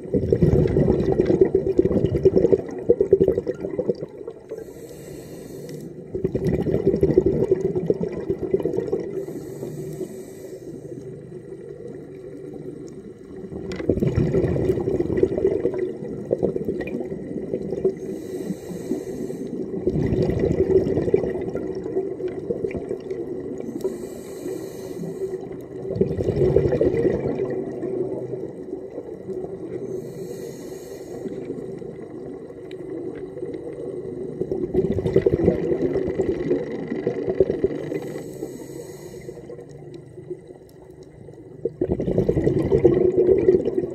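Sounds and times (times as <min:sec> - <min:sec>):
exhaled bubbles rushing: 0:00.0 - 0:04.5, 0:06.0 - 0:09.4, 0:11.0 - 0:18.4, 0:19.5 - 0:24.0, 0:25.4 - 0:29.9, 0:31.2 - 0:38.2, 0:39.4 - 0:43.9
regulator inhale hiss: 0:04.4 - 0:06.2, 0:09.0 - 0:11.8, 0:17.8 - 0:19.8, 0:23.6 - 0:25.8, 0:29.6 - 0:32.2, 0:37.8 - 0:40.6.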